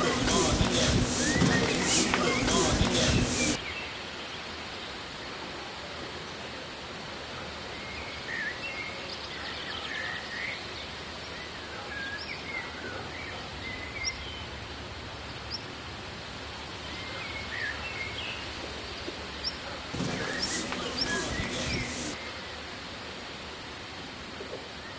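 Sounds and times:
steady background hiss: 0.0s - 24.9s
small birds chirping: 16.8s - 22.2s.

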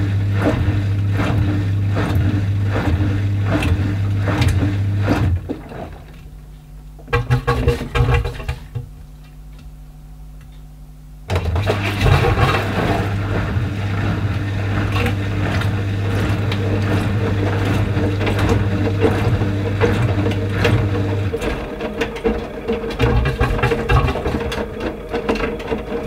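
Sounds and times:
washing machine drum motor humming: 0.0s - 26.0s
laundry tumbling in drum: 11.3s - 26.0s.

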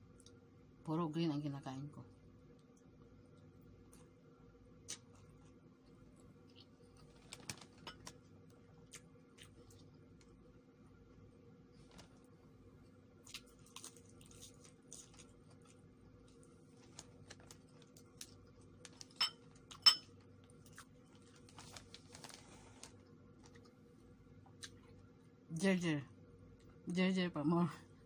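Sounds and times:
steady low hum: 0.0s - 28.0s
person eating leafy greens: 8.8s - 10.3s, 13.1s - 19.8s, 20.4s - 23.9s.

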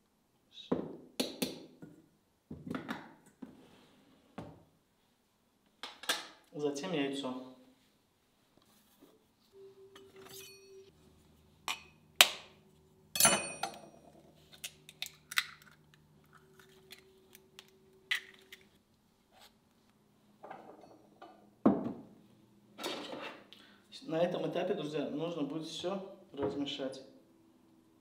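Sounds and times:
glass and dishes clinking: 10.0s - 10.9s, 13.2s - 14.2s, 20.4s - 21.4s.

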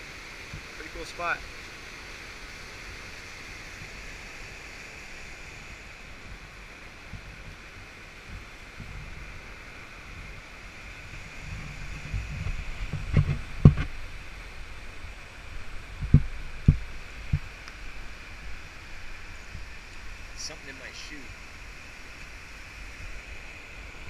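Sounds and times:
water rushing through dam: 0.0s - 24.0s
low rumble on microphone: 6.1s - 20.4s.

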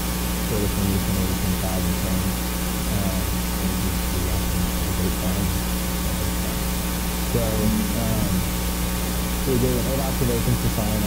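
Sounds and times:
constant hiss: 0.0s - 11.0s
electrical hum: 0.0s - 11.0s
faint voice-like sounds: 0.5s - 6.7s, 7.3s - 8.5s.

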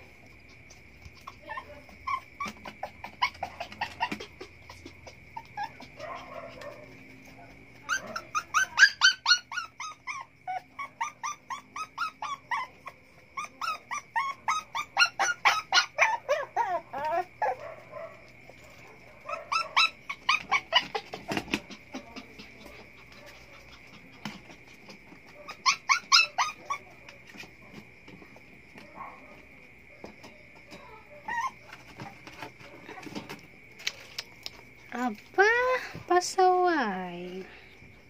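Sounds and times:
puppy yelping and whining: 1.0s - 6.8s, 7.8s - 27.1s, 30.7s - 33.2s.

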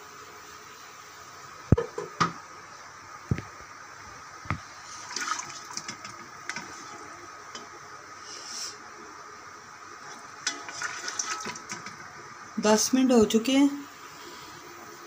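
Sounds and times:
liquid sloshing and splashing: 5.0s - 7.0s, 10.4s - 12.0s.

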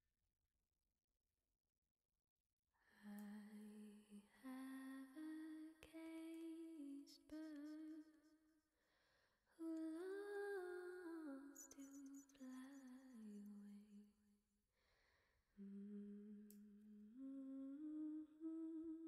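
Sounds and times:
person humming a slow melody: 9.6s - 14.0s, 15.6s - 19.0s.

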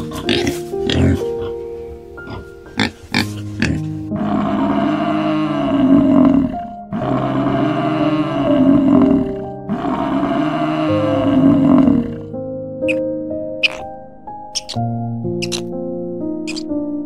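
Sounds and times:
background music with held notes: 0.0s - 17.0s
buffalo bellowing: 2.2s - 13.9s.

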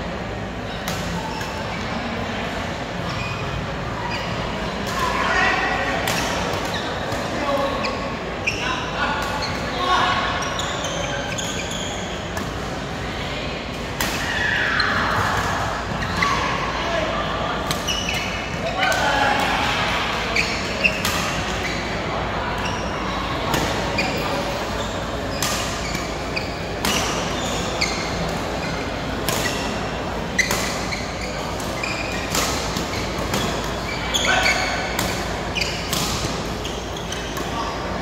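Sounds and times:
shoes squeaking on floor: 7.8s - 12.3s, 17.8s - 18.5s, 20.4s - 21.0s, 21.6s - 22.0s, 22.6s - 23.0s, 23.8s - 37.8s.

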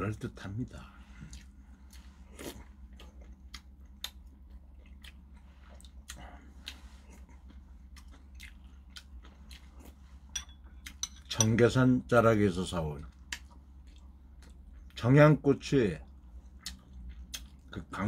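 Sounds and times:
low steady hum: 0.0s - 18.0s
person chewing food: 1.1s - 11.3s, 13.0s - 15.0s, 16.1s - 17.8s.

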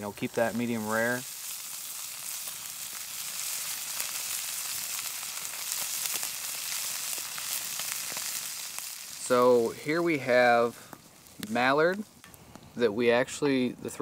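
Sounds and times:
meat sizzling in skillet: 0.0s - 13.6s.

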